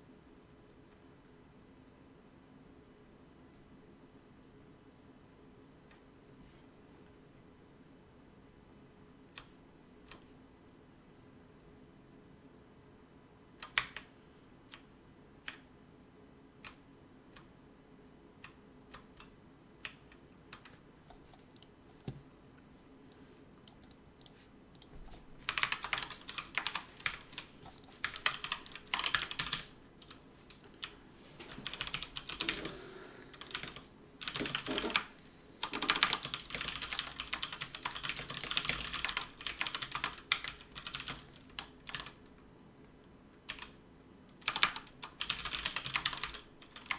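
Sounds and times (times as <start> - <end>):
computer keyboard typing: 13.6 - 14.1, 18.4 - 21.7, 23.7 - 30.9, 31.6 - 42.2, 43.4 - 43.8, 44.4 - 46.9.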